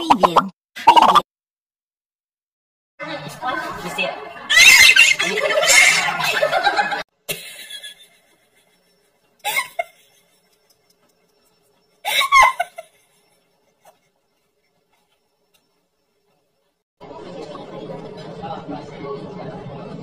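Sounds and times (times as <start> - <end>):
voices: 3.0 - 7.0
people laughing: 3.0 - 10.5, 12.1 - 13.2.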